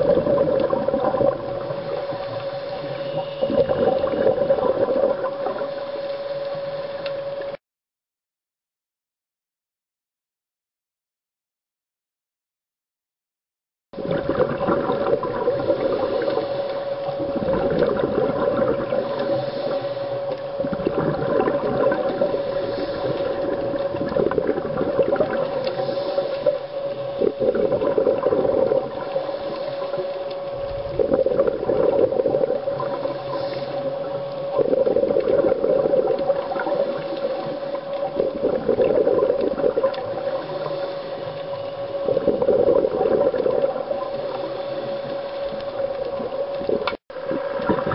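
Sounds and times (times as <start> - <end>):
bubbles gurgling underwater: 0.0 - 5.8, 14.0 - 47.9
steady hum: 0.0 - 7.6, 14.0 - 47.9.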